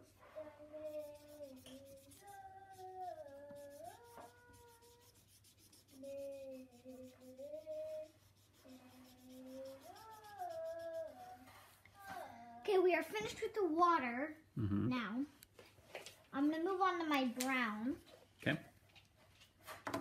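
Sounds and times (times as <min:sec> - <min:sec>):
child humming: 0:00.4 - 0:05.2, 0:05.9 - 0:12.6, 0:14.6 - 0:14.9
marker scratching on paper: 0:00.8 - 0:11.5.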